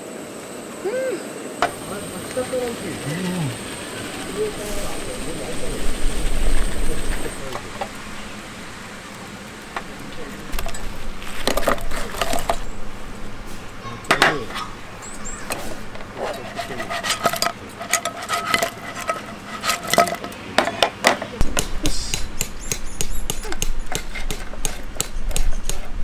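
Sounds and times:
tongs clacking and scraping pan: 0:16.0 - 0:20.4.

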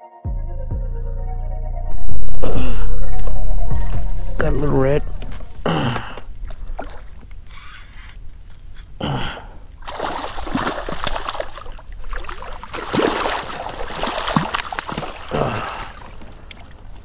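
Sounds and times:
fish splashing in water: 0:06.0 - 0:07.3, 0:09.8 - 0:17.0.

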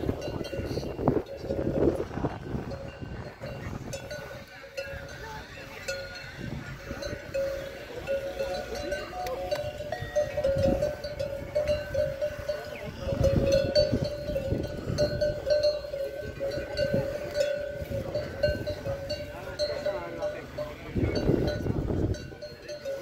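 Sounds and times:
wind rumbling on microphone: 0:00.0 - 0:05.3, 0:06.3 - 0:07.6, 0:09.6 - 0:19.4, 0:20.8 - 0:22.6
livestock bells clanking: 0:00.0 - 0:23.0.

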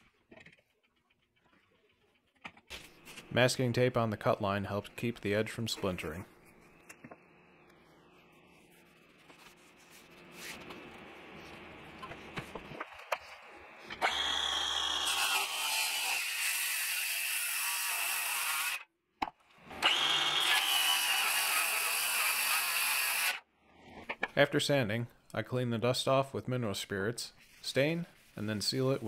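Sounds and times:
circular saw cutting wood: 0:13.4 - 0:18.9, 0:19.6 - 0:23.4.

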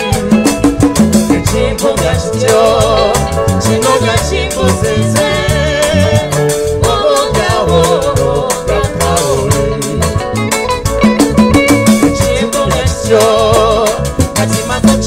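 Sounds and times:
bass guitar: 0:00.0 - 0:15.0
drum kit beat: 0:00.0 - 0:15.0
woman singing with vibrato: 0:01.4 - 0:10.2.

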